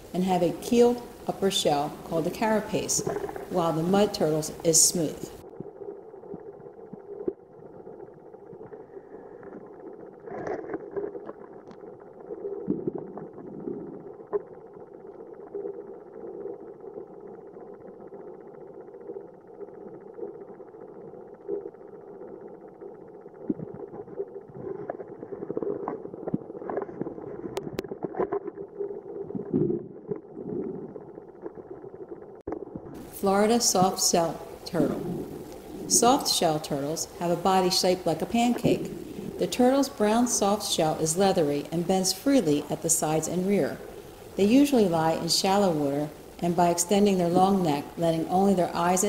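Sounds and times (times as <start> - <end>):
muffled underwater rumble: 0.0 - 49.0
clicks and crackles: 6.3 - 15.8, 23.4 - 30.3.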